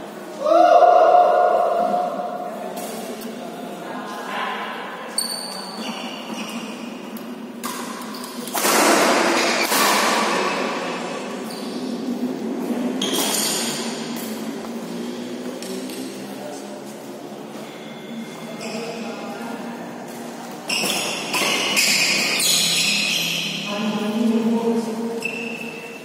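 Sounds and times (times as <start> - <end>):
shoe squeaks on court: 5.1 - 7.0, 13.0 - 13.8, 17.6 - 19.0, 20.6 - 23.6, 25.2 - 26.0.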